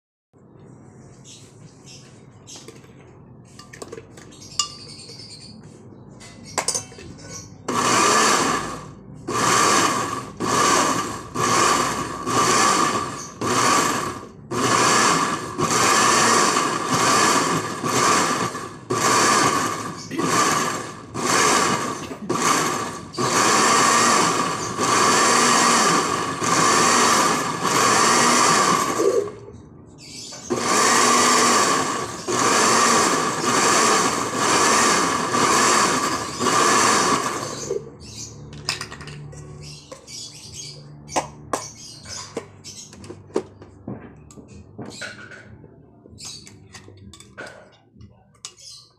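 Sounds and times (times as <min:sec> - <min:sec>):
electric blender pulsing: 0:07.7 - 0:29.4, 0:30.5 - 0:37.8.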